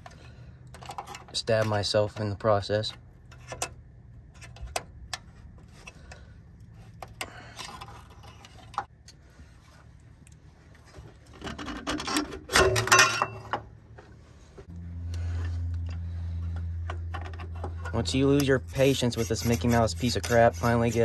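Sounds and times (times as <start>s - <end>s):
filter rattling and scraping: 0.0s - 14.2s, 15.3s - 21.0s.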